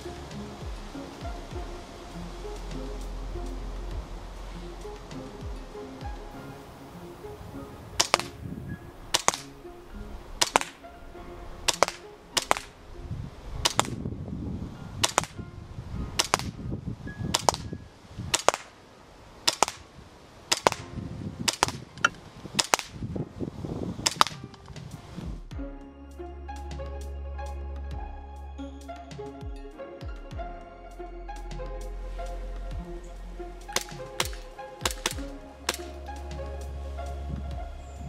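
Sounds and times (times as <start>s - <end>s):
airsoft pistol shots: 33.8s - 35.9s.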